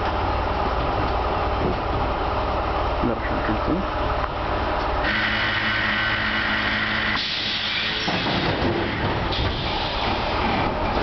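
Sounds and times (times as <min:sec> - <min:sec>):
tram motor hum and whine: 0:00.0 - 0:11.0
wheels rumbling on rail: 0:00.0 - 0:11.0
air hiss: 0:06.8 - 0:08.3.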